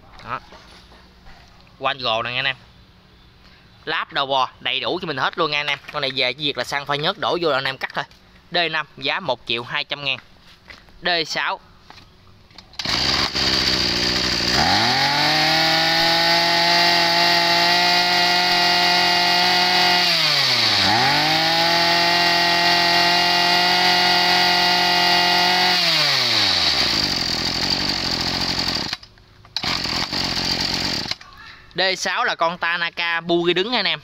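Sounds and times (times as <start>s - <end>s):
brush cutter engine idling and revving: 12.6s - 31.3s.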